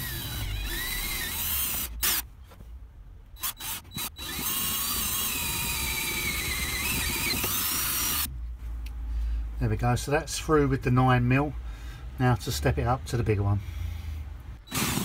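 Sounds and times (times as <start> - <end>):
cordless drill boring through metal: 0.0 - 2.2, 3.4 - 8.3, 14.7 - 15.0
high squealing bit whine: 0.0 - 2.2, 3.4 - 8.3.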